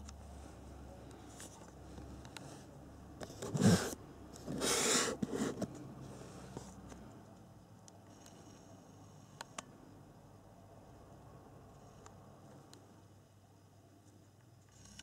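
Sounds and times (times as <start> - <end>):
cardboard scraping rubs: 3.3 - 5.7.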